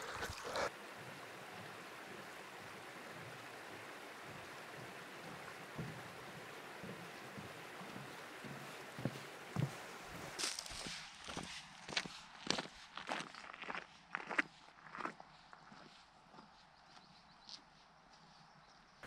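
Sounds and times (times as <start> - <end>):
stream flowing: 0.0 - 10.8.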